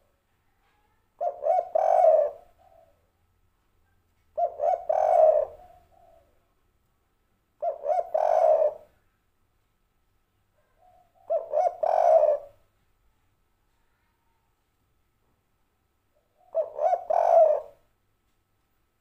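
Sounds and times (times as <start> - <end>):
dove cooing: 1.2 - 3.1, 4.3 - 6.5, 7.6 - 9.0, 10.6 - 12.6, 16.2 - 17.8.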